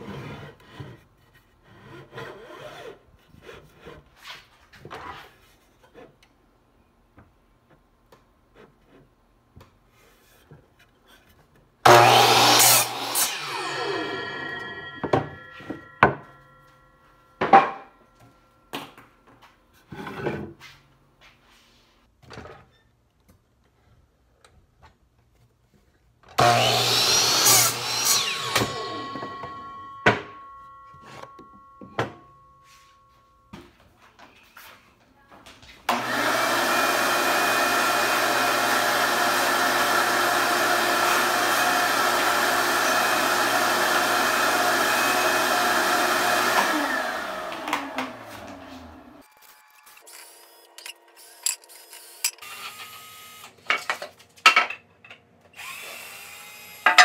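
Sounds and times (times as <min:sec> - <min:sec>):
miter saw cutting wood: 0:11.8 - 0:16.6, 0:26.4 - 0:30.3, 0:35.9 - 0:53.6, 0:55.6 - 0:57.0
shop vacuum running: 0:11.8 - 0:16.8, 0:26.4 - 0:33.6, 0:35.9 - 0:50.7, 0:55.6 - 0:57.0.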